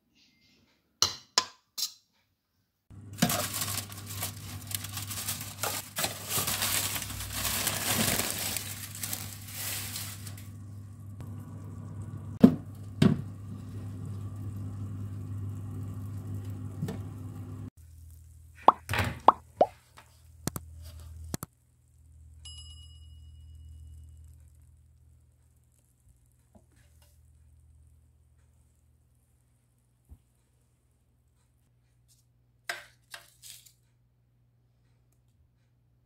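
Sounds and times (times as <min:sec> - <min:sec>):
oven fan hum: 0:02.9 - 0:17.7
paper crinkling rustle: 0:03.1 - 0:10.5, 0:33.0 - 0:33.9.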